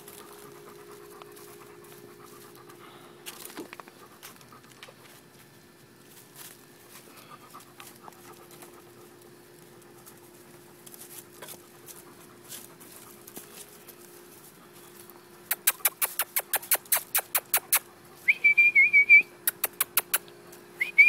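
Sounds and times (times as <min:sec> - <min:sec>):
puppies panting: 0:00.0 - 0:05.5, 0:06.4 - 0:18.7, 0:19.4 - 0:20.3
puppies scuffling: 0:00.0 - 0:18.3.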